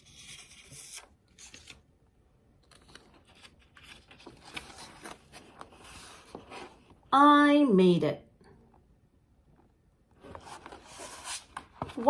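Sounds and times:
paper pages rustling: 0.0s - 1.9s, 2.6s - 7.0s, 10.2s - 12.0s.

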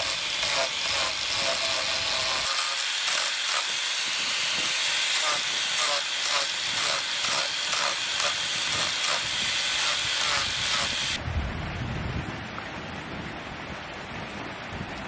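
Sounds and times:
angle grinder sanding wood: 0.0s - 11.2s
low rumble: 11.2s - 15.0s.

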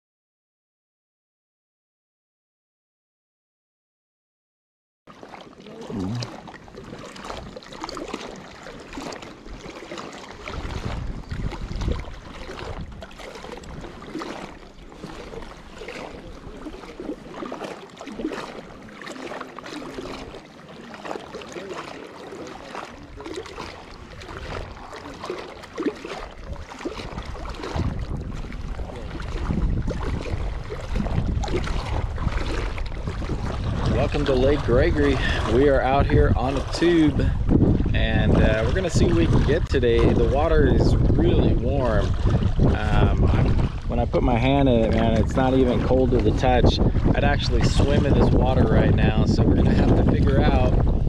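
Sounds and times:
water lapping and splashing: 5.1s - 51.0s
wind on microphone: 8.9s - 18.7s, 26.1s - 51.0s.

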